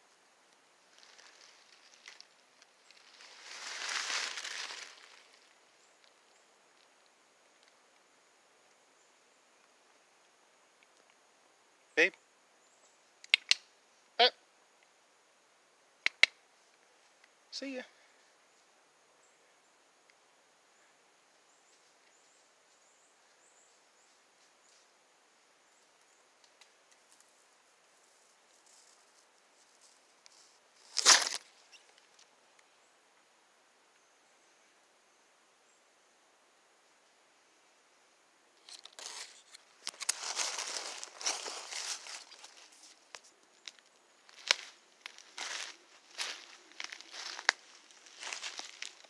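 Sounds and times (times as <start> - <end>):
footsteps crunching dry leaves: 0.9 - 5.6, 38.8 - 49.0
sharp snaps underfoot: 13.2 - 13.7, 16.0 - 16.4, 29.8 - 32.3, 38.6 - 49.0
faint high-pitched chirps: 16.0 - 49.0.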